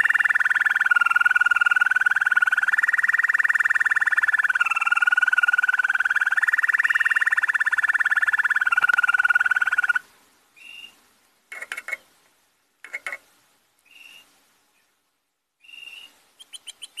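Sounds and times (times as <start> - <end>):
finch singing trills and chips: 15.6 - 17.0.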